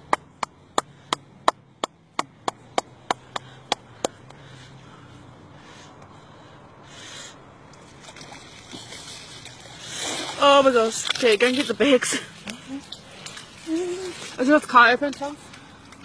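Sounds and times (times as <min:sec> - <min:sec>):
hand clapping: 0:00.0 - 0:04.2.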